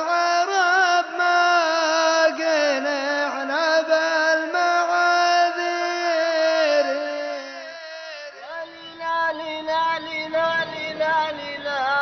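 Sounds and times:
layered voices chanting: 8.5s - 11.7s.

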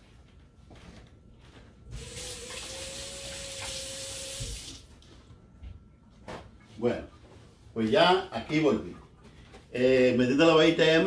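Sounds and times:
faucet water running: 2.0s - 4.9s.

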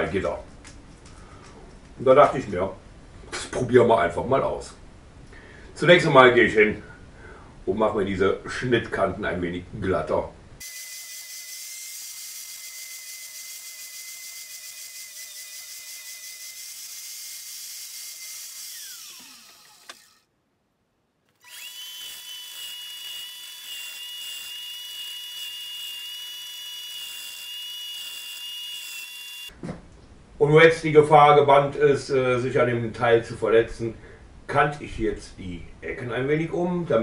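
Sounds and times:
angle grinder on metal mesh: 10.6s - 20.2s, 21.4s - 29.5s
disc sander running: 10.6s - 20.2s, 21.4s - 29.5s.

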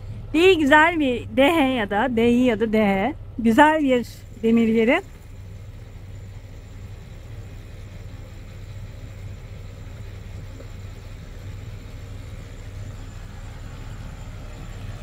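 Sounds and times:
diesel engine humming: 0.0s - 15.0s.

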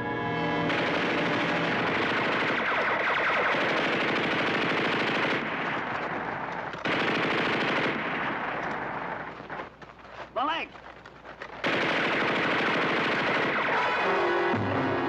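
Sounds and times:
automatic gunfire: 0.7s - 9.7s, 11.6s - 14.4s.

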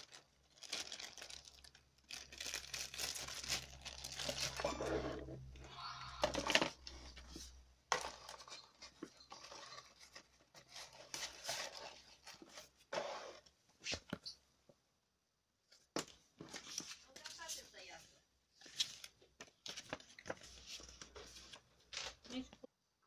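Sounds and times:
plastic wrapping crinkling: 0.0s - 5.1s.

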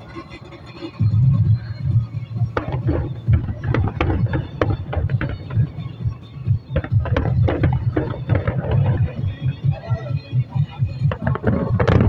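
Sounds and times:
fireworks cracking and popping: 2.3s - 9.6s, 11.1s - 12.0s
low rumble of booms: 2.5s - 9.7s, 11.0s - 12.0s.

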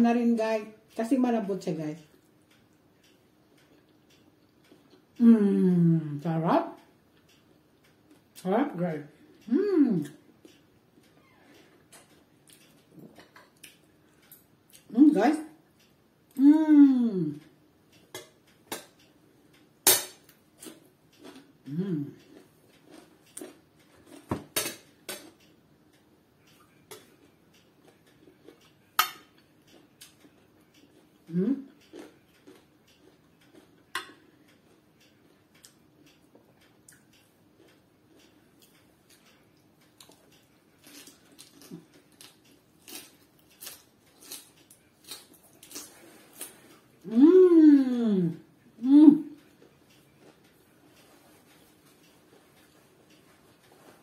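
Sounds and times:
close-mouthed chewing: 20.6s - 24.3s, 29.4s - 47.1s.

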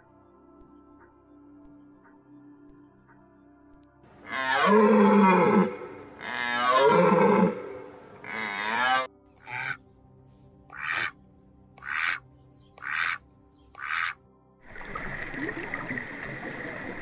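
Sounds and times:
high bird chirps: 0.0s - 3.4s
background music: 0.0s - 17.0s.

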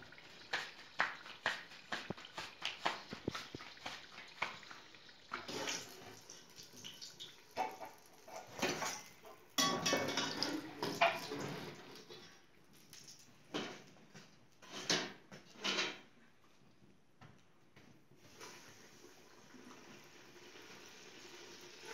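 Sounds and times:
hot oil sizzling: 0.0s - 11.8s, 18.2s - 21.9s
metal spoon and pots clattering: 7.6s - 12.3s, 14.6s - 16.1s.

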